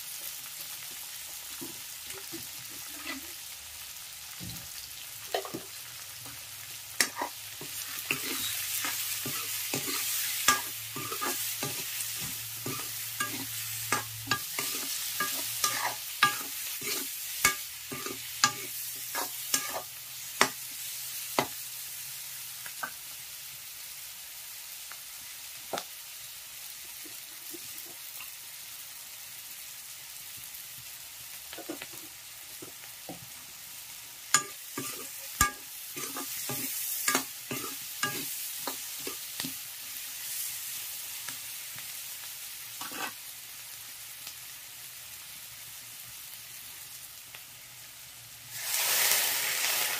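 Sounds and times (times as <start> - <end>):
onions sizzling in oil: 0.0 - 49.9
metal ladle scraping wok: 7.0 - 19.9, 34.4 - 39.2, 42.8 - 43.2.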